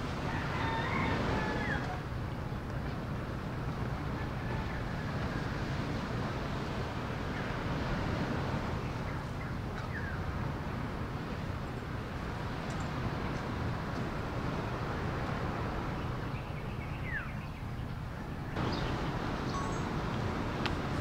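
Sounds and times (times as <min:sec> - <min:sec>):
sea surf: 0:00.0 - 0:21.0
wind: 0:00.0 - 0:21.0
faint bird chirps: 0:16.4 - 0:19.9.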